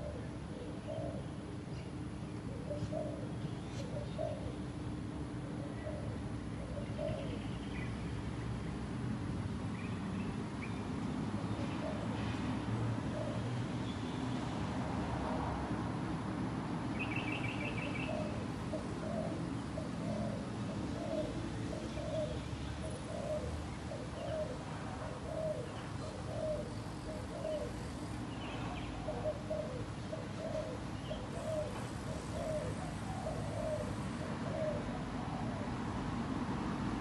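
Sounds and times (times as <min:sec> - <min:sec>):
dove cooing: 0:00.0 - 0:01.4, 0:02.5 - 0:04.6, 0:05.4 - 0:07.4, 0:11.7 - 0:12.3, 0:13.1 - 0:13.5, 0:17.0 - 0:27.8, 0:28.6 - 0:36.0.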